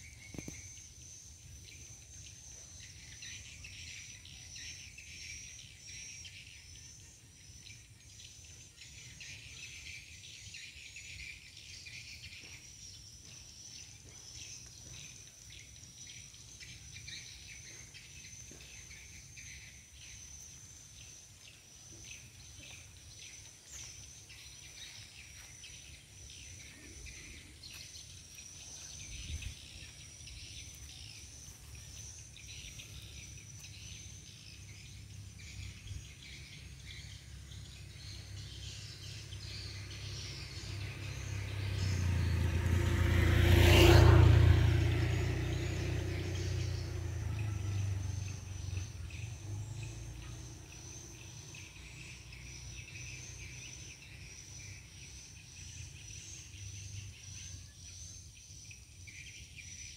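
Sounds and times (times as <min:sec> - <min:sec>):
insects chirring: 0:00.0 - 0:59.9
motor vehicle passing: 0:13.4 - 0:58.5.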